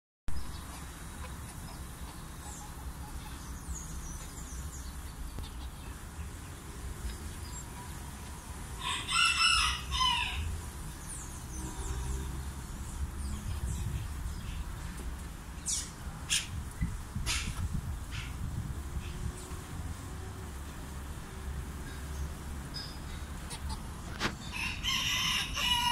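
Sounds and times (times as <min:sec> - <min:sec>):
rooster crowing: 0:08.8 - 0:10.5, 0:24.5 - 0:25.9
steady low rumble: 0:10.4 - 0:24.1.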